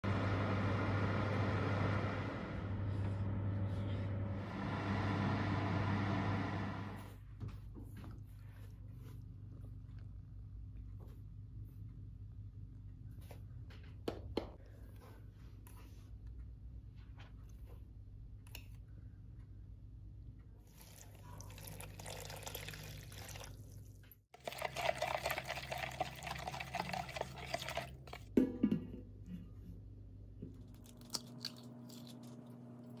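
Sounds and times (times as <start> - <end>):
oven fan humming and whooshing: 0.0 - 7.1
milk pouring into a bowl: 20.7 - 28.2.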